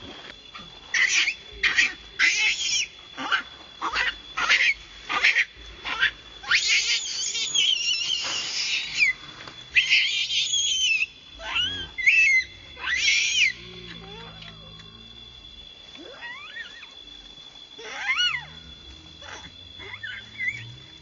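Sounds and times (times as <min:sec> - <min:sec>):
baby monkey screaming: 0:00.9 - 0:14.6, 0:16.0 - 0:17.0, 0:17.8 - 0:18.5, 0:19.2 - 0:20.6.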